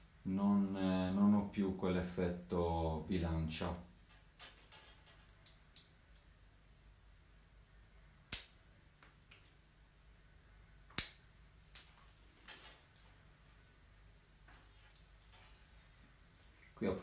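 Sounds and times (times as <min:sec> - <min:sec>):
wire and hand tools snapping: 0:08.3 - 0:09.4, 0:10.9 - 0:13.1.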